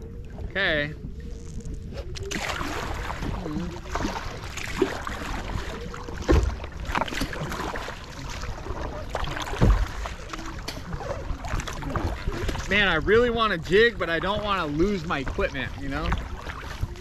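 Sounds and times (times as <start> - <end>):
wind and water rushing: 0.0 - 17.0
paddle splashing into water: 2.3 - 12.8.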